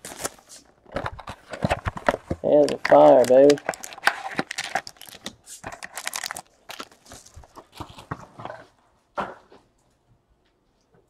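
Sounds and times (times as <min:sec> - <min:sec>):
card packs rustling and crinkling: 0:00.0 - 0:08.8.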